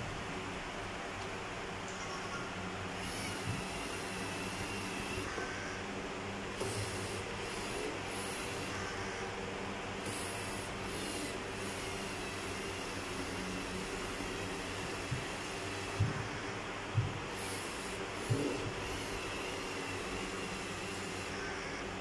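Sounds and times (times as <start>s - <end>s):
small electric motors whirring: 3.0s - 5.8s, 6.5s - 9.3s, 10.0s - 16.6s, 17.2s - 21.9s.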